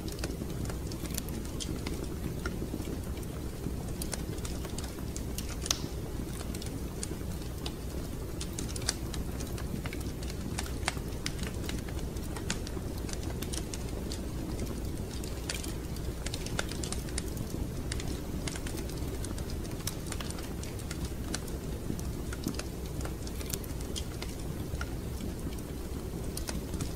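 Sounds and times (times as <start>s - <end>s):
wood fire crackling: 0.0s - 26.9s.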